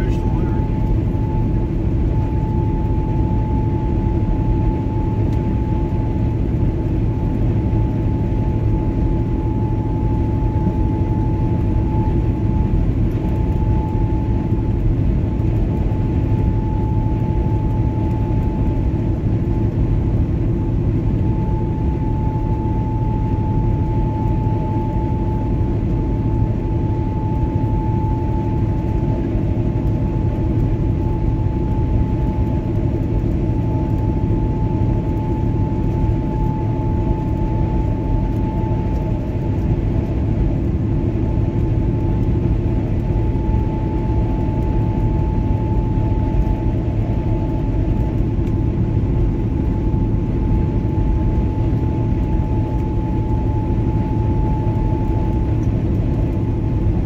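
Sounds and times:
thin steady whine: 0.0s - 57.0s
vehicle engine drone: 0.0s - 57.0s.

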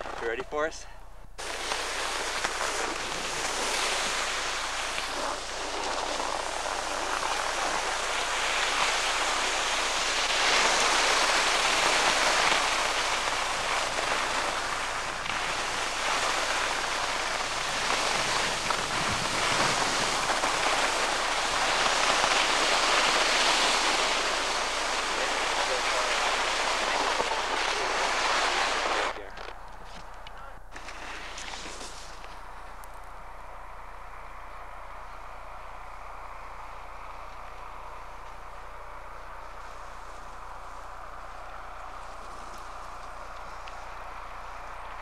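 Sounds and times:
skis sliding on packed snow: 0.0s - 0.7s, 1.4s - 30.1s, 30.7s - 32.9s, 35.0s - 45.0s
wind across microphone: 1.4s - 45.0s.

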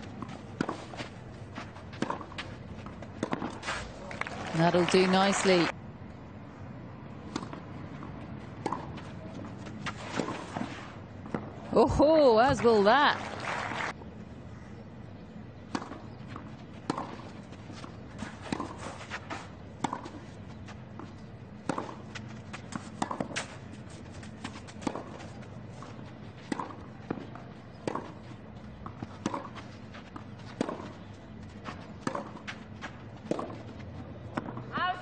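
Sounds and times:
racket striking tennis ball: 1.9s - 2.5s, 3.2s - 3.9s, 8.6s - 9.0s, 16.9s - 17.2s, 18.2s - 20.2s, 21.6s - 23.6s, 32.0s - 32.6s, 33.2s - 33.6s.

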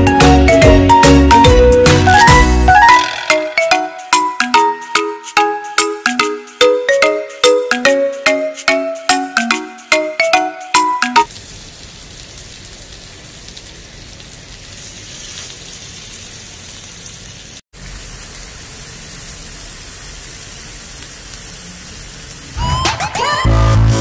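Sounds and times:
music: 0.0s - 11.3s, 22.6s - 24.0s
meat sizzling on grill pan: 11.3s - 22.6s.

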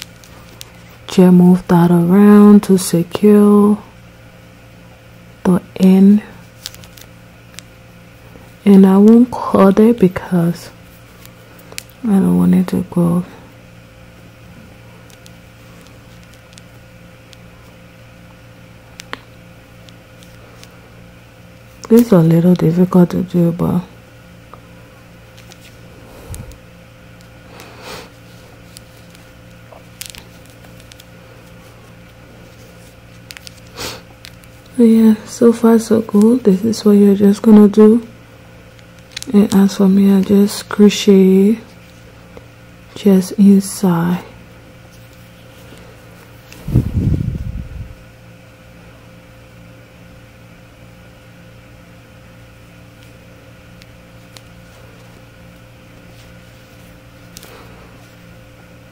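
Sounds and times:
steady low hum: 0.0s - 58.9s.

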